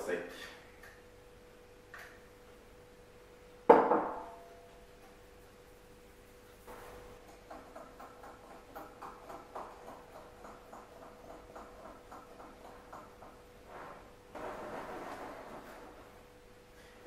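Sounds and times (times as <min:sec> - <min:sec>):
wire whisk beating batter: 0:06.7 - 0:13.5.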